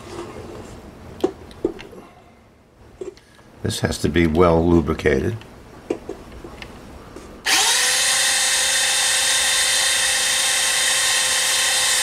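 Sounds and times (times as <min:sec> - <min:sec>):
electric drill whining: 0:07.4 - 0:12.0.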